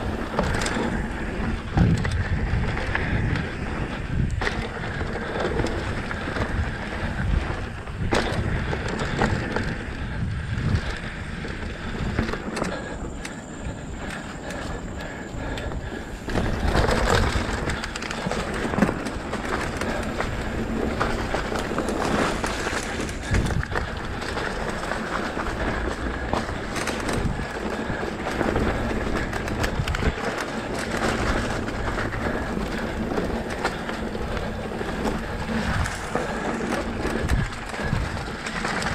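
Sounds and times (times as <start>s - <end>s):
bike rattling over bumps: 0.0s - 38.9s
tyres crunching over dirt: 11.0s - 38.9s.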